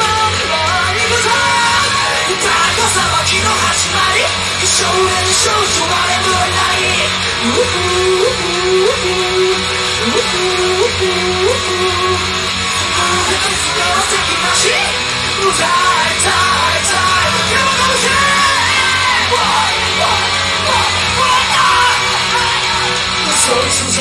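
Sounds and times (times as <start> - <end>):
guitar: 0.0 - 24.0
person singing: 0.0 - 24.0.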